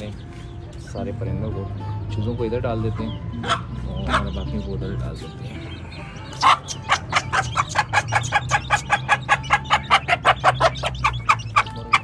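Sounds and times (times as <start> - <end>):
hen clucking: 2.7 - 5.0, 5.7 - 12.0.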